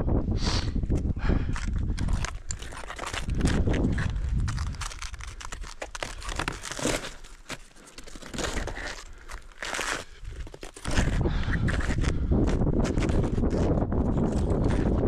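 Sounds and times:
wind buffeting microphone: 0.0 - 5.7, 10.3 - 15.0.

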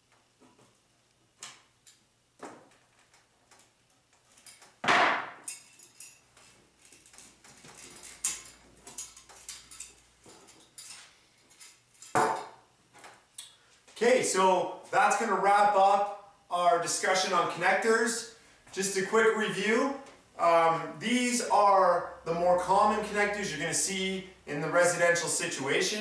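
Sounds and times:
metal cable clanking and rattling: 5.4 - 12.2.

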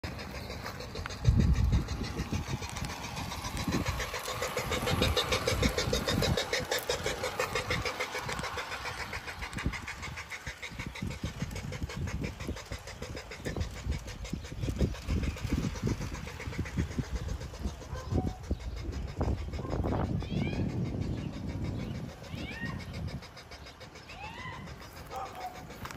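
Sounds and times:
low rumbling: 0.0 - 25.9
model locomotive motor whirring: 0.0 - 25.9.

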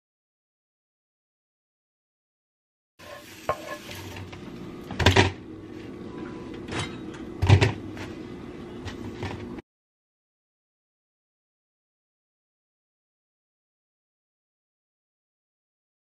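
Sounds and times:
utensil scraping pan: 3.0 - 4.4
eggs sizzling in frying pan: 3.0 - 4.6.

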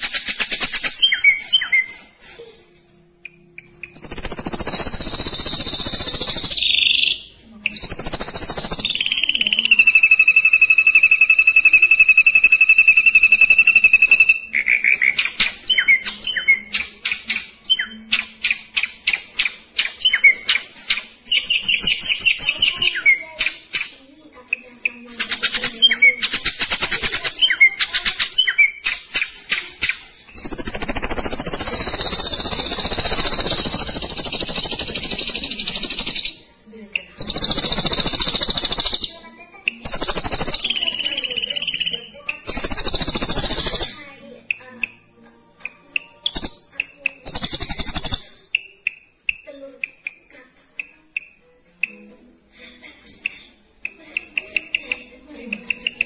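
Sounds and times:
bird singing fast trills: 3.6 - 19.0, 21.2 - 23.3, 30.3 - 44.0, 45.9 - 49.1.

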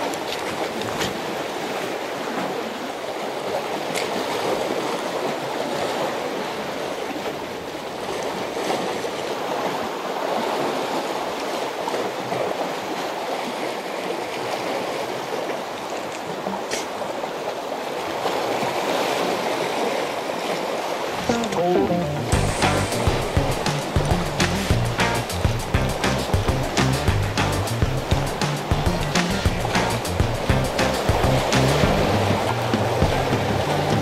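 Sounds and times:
sea water sloshing among blocks: 0.0 - 21.3.

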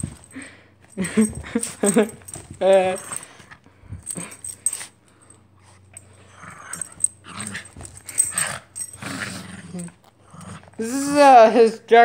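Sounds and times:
small dog growling: 6.3 - 11.0.

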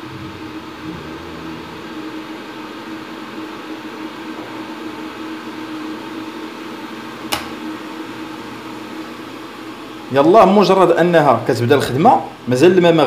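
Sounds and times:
electric kettle heating water: 0.0 - 13.0
kettle switch click: 7.3 - 7.6.

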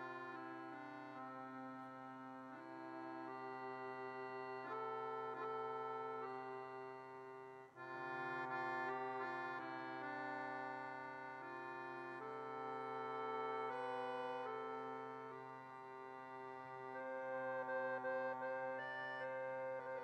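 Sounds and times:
accordion playing slow melody: 0.0 - 20.0.

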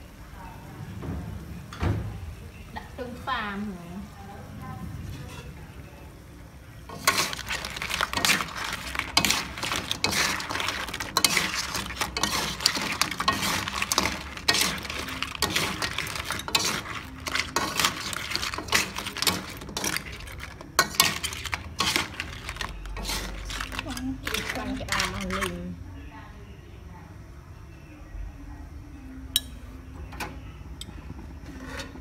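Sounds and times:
utensils clinking against wok: 6.9 - 25.8, 29.3 - 29.6.

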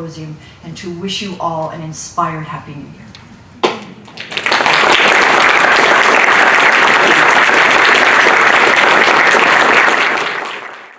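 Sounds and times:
audience applauding: 4.1 - 10.9.

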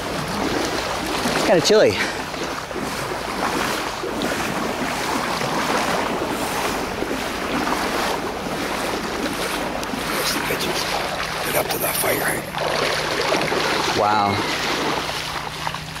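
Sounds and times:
floodwater rushing: 0.0 - 16.0.

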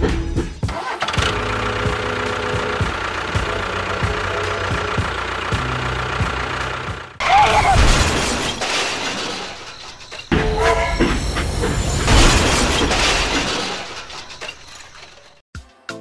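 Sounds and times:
tractor engine chugging: 0.6 - 7.4
loud crash: 7.2 - 15.4.

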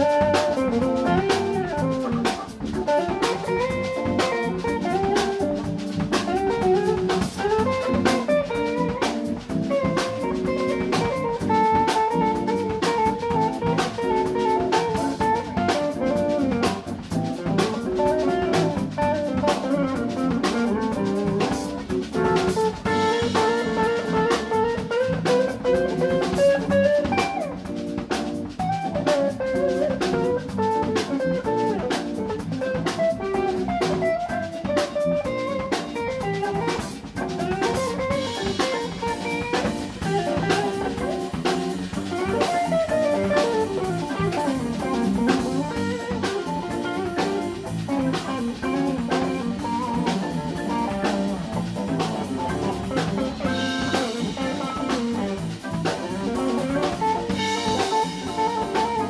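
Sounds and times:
jazz organ quartet playing: 0.0 - 59.0
drum and cymbal strokes: 31.9 - 59.0.

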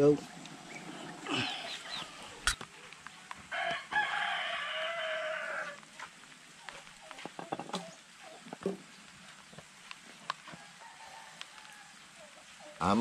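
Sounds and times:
rooster crowing: 3.5 - 5.8, 10.4 - 12.4.

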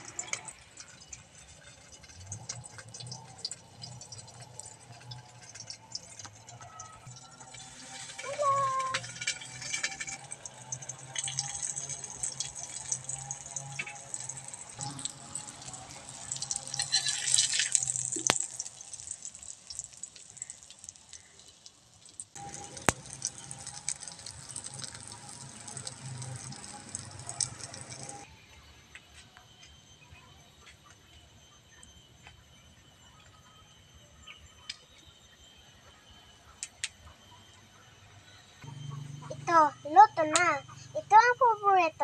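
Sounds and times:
oil sizzling in a wok: 0.0 - 28.3.

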